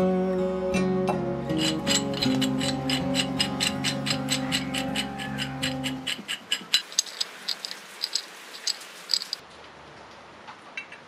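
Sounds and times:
background music: 0.0 - 6.2
faint ticks: 6.1 - 9.4
metallic clicks of wrench handling: 6.1 - 9.4.

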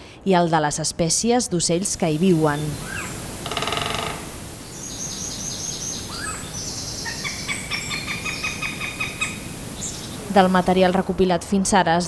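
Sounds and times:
birds calling and singing: 1.8 - 11.1
bird buzzy rattle: 2.6 - 5.2.

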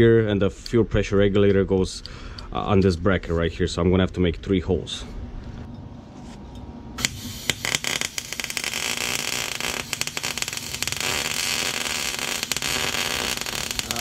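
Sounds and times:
welder arc crackling: 7.0 - 14.0.

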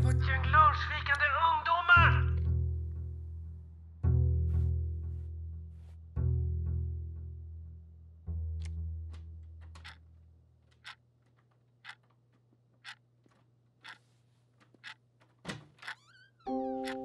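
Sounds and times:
clock ticking: 9.6 - 10.0, 10.7 - 11.0, 11.8 - 12.2, 12.8 - 13.1, 13.8 - 15.1, 15.8 - 17.0.

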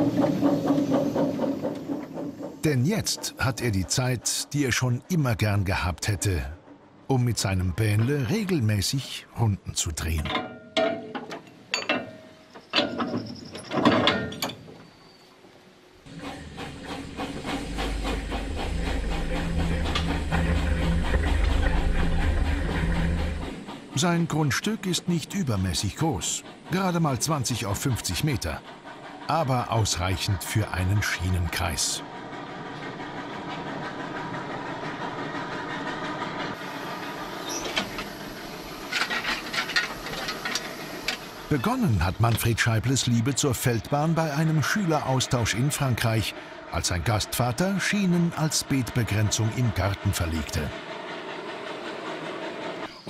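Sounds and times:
train wheels clattering: 0.0 - 8.6, 16.1 - 53.0
low train rumble: 0.0 - 10.4, 11.5 - 53.0
metal coupling clanks: 10.1 - 14.8
train hiss: 14.9 - 53.0.

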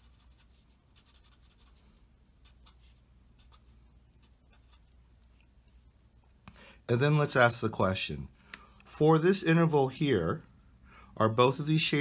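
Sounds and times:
pen scratching on paper: 0.0 - 5.0
low steady hum: 0.0 - 12.0.

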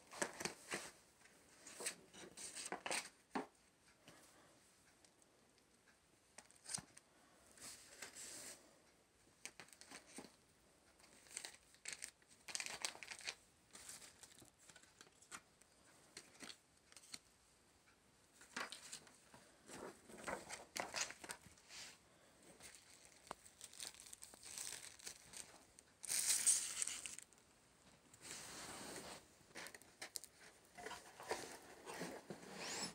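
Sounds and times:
plastic and paper packaging crinkling: 0.0 - 1.0, 9.4 - 10.4, 11.0 - 15.4, 18.4 - 21.6, 22.4 - 27.4, 28.2 - 32.2.

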